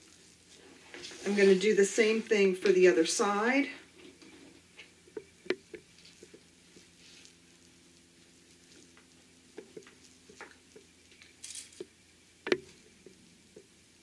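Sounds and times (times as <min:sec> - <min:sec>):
fabric rustling: 0:00.0 - 0:04.8
faint steady hum: 0:00.0 - 0:14.0.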